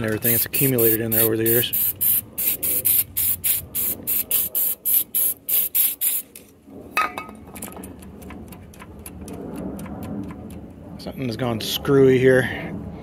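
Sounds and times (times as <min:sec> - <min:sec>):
aerosol can spraying in short bursts: 0:00.2 - 0:06.3.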